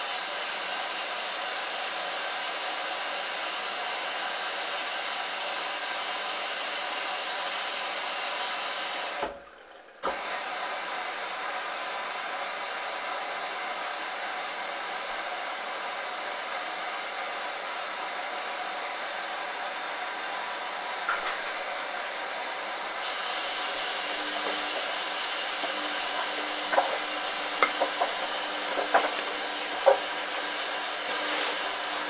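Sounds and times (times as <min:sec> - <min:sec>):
washing machine hum: 0:00.0 - 0:32.0
water running into drum: 0:23.0 - 0:32.0.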